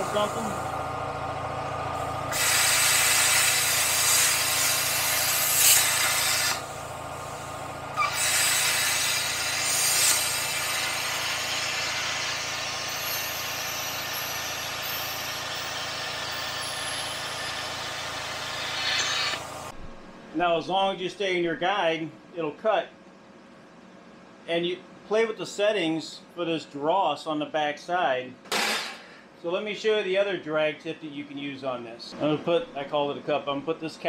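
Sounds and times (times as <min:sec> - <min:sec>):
plasma cutter arc hissing: 0:00.0 - 0:00.6, 0:02.0 - 0:19.7
plasma cutter click: 0:02.3 - 0:06.6.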